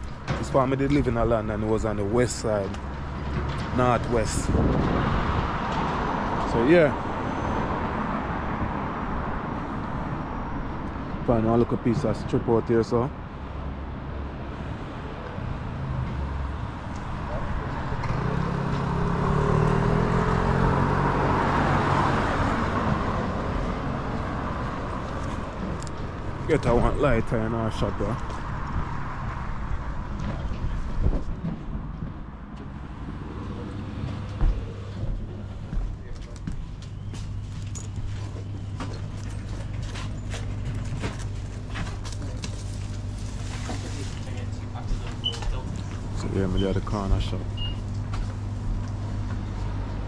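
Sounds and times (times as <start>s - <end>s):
vehicle driving past: 14.8s - 25.7s.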